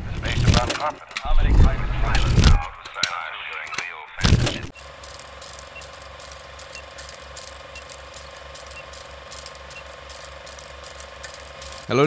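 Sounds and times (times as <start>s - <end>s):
film projector clattering: 4.2s - 12.0s.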